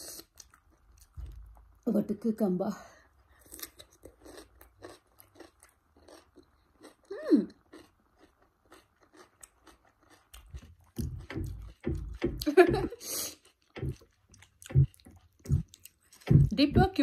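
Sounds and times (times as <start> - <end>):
crunchy chewing of cucumber: 3.4 - 17.0
low thuds: 11.0 - 13.0, 13.8 - 14.0, 14.6 - 17.0.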